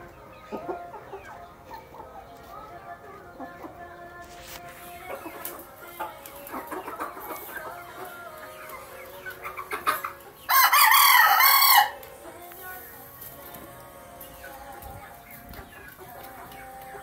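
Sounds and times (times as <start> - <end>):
chickens clucking: 0.0 - 17.0
rooster crowing: 10.5 - 12.0.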